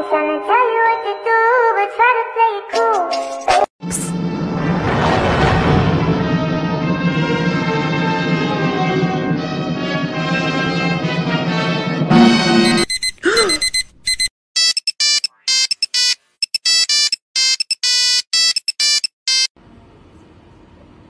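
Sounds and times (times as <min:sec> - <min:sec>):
orchestral music: 0:03.8 - 0:12.8
bright electronic beeps: 0:12.1 - 0:19.5.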